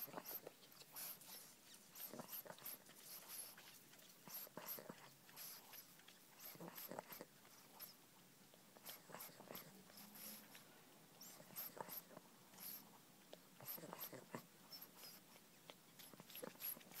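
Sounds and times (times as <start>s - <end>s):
puppy snuffling and breathing: 0.0s - 17.0s
puppy mouth clicks: 11.6s - 17.0s.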